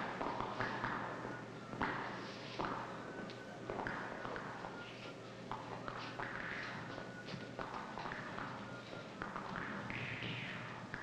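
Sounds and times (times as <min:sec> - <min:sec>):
faint steady hum: 0:00.0 - 0:11.0
feet tapping on studio floor: 0:05.5 - 0:11.0.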